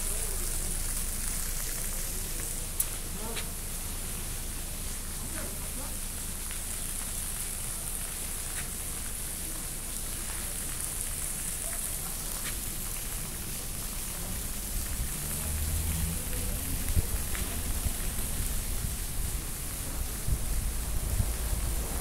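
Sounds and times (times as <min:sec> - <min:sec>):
street background hiss: 0:00.0 - 0:22.0
low rumble: 0:16.2 - 0:22.0.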